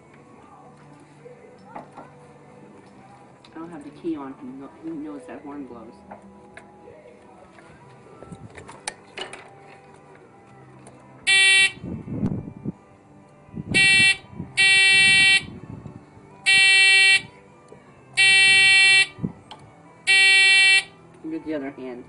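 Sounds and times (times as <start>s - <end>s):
mobility scooter horn honks: 11.3s - 11.8s, 13.8s - 15.5s, 16.5s - 17.3s, 18.2s - 19.1s, 20.1s - 20.9s.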